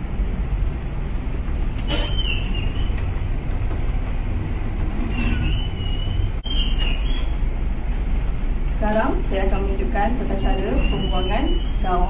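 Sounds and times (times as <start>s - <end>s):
steady low rumble: 0.0s - 1.9s, 3.0s - 6.4s
faint high squeaks: 1.8s - 3.1s, 5.0s - 7.4s, 10.5s - 12.0s.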